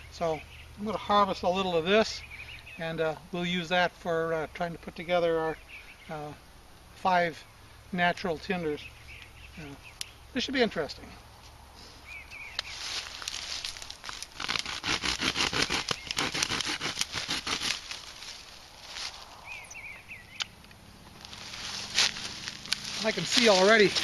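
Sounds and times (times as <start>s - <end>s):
dry stalk crackling and snapping: 12.5s - 19.2s, 20.3s - 24.0s.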